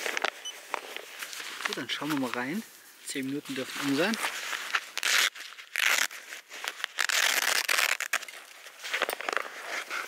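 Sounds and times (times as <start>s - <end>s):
foil pouch crinkling: 3.5s - 10.0s.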